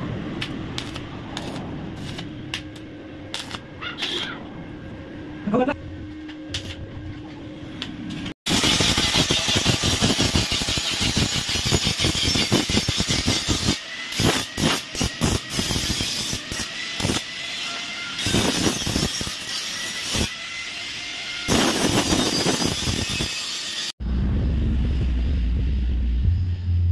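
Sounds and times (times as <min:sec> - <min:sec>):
angle grinder grinding metal: 0:08.5 - 0:23.9.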